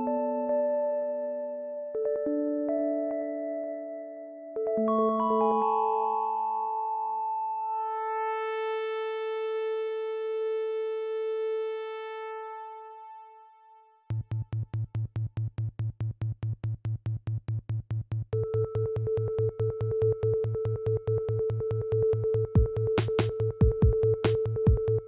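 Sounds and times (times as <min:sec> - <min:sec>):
synthesizer music: 0:18.5 - 0:25.0
pulsing beat with deep bass: 0:22.4 - 0:25.0.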